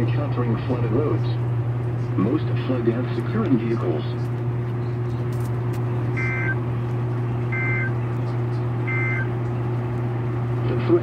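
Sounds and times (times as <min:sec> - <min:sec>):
low even hum: 0:00.6 - 0:11.0
short electronic beeps: 0:06.2 - 0:06.6, 0:07.5 - 0:08.0, 0:08.9 - 0:09.3.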